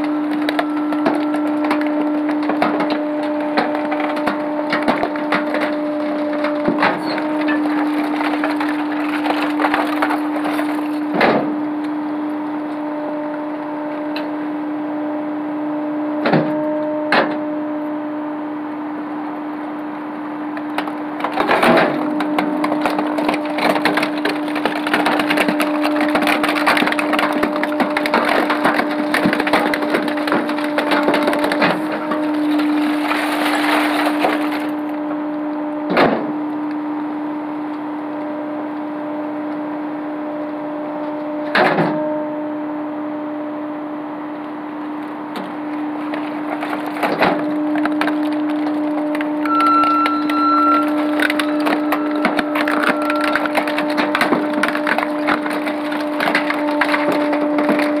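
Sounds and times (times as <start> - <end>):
garbage crackling and snapping: 0.0 - 14.4, 19.2 - 36.8, 44.3 - 58.0
hydraulic hum: 0.0 - 58.0.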